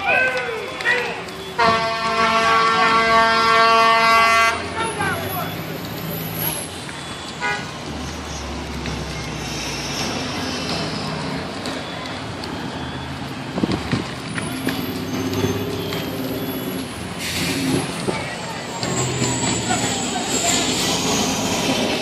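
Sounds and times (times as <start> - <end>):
fire engine running: 0.0 - 22.0
outdoor noise: 0.0 - 22.0.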